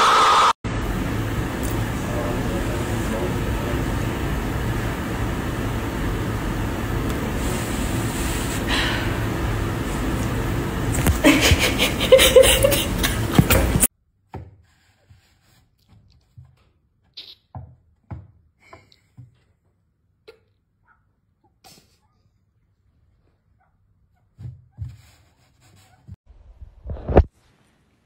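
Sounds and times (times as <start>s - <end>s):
woman laughing: 11.0s - 13.9s.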